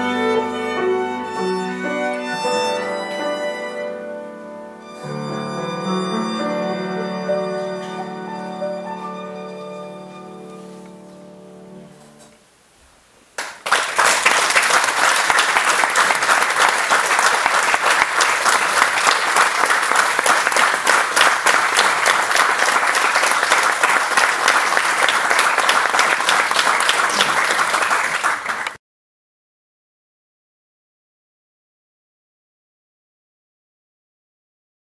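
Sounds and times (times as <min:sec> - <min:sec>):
audience applause: 0:13.4 - 0:28.8.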